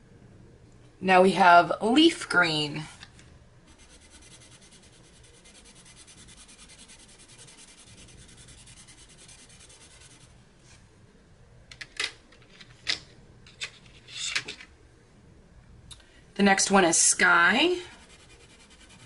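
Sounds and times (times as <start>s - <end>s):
colored pencil scribbling on paper: 3.7s - 10.4s, 17.6s - 19.0s.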